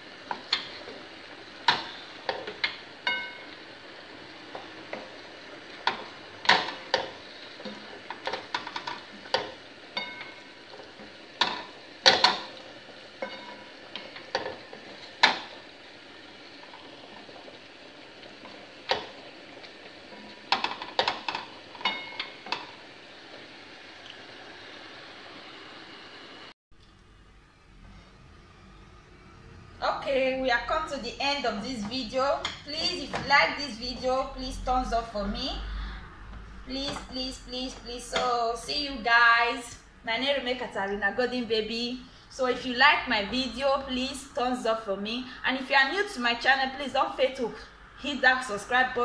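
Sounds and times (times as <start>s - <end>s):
sauce sizzling in frying pan: 0.0s - 26.5s.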